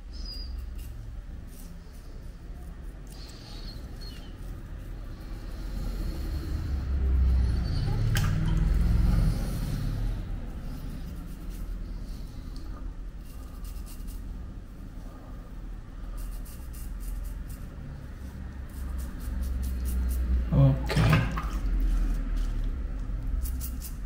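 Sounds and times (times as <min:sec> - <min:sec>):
razor scraping stubble: 0:16.1 - 0:20.4, 0:21.8 - 0:24.0.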